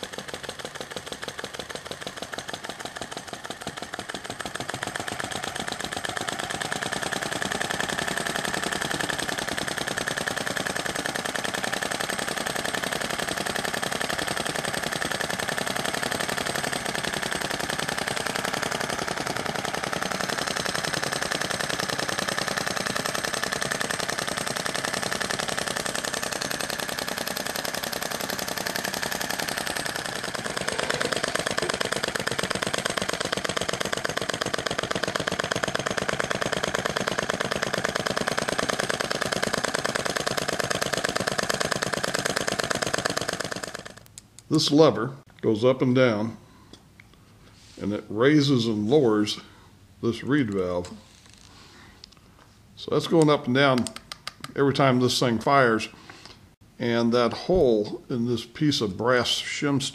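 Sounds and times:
model engine ticking: 0:00.0 - 0:44.1.

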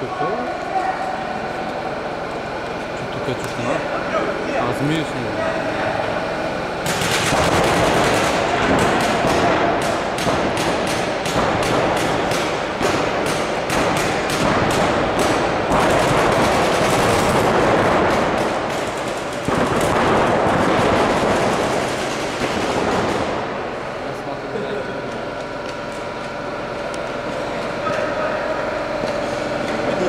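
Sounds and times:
continuous din: 0:00.0 - 0:30.0
paintball markers firing: 0:06.8 - 0:23.3.

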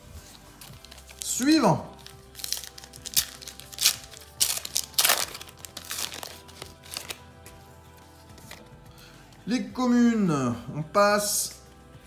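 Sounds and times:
faint background music: 0:00.0 - 0:12.0
wrapper tearing and crinkling: 0:00.6 - 0:07.2.

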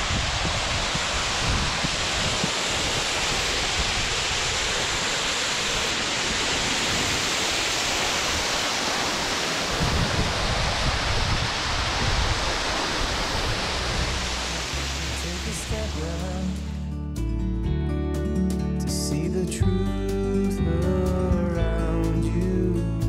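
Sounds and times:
waterfall splashing on rock: 0:00.0 - 0:16.7.

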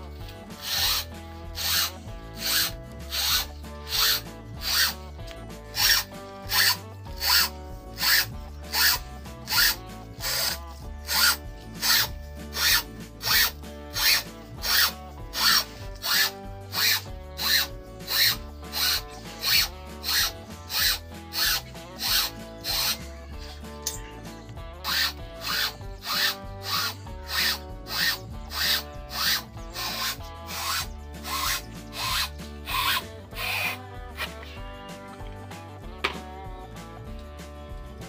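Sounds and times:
blade rasping through rubber: 0:00.0 - 0:35.4
soft background music: 0:00.0 - 0:38.0.

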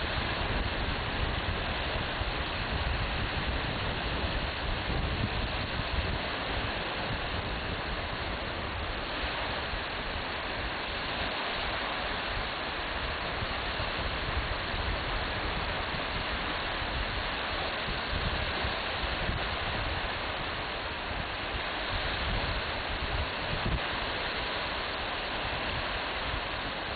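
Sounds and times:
wind buffeting microphone: 0:00.0 - 0:10.4, 0:13.2 - 0:24.0.

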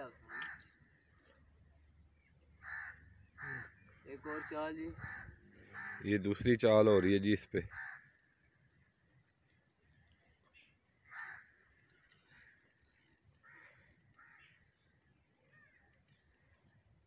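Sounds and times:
faint bird calls: 0:02.1 - 0:06.1, 0:09.6 - 0:17.0.

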